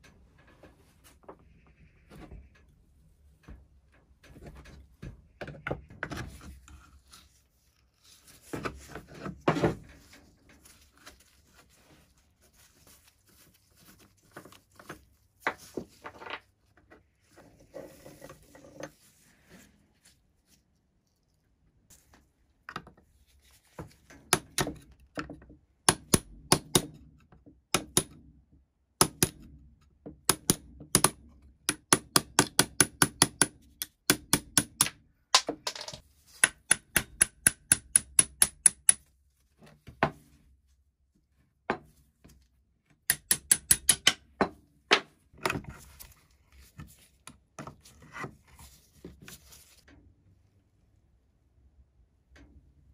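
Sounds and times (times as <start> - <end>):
hammer striking pin punch: 25.9 - 27.0, 27.7 - 28.2, 29.0 - 29.5, 30.2 - 35.0, 36.4 - 39.0, 43.1 - 44.2.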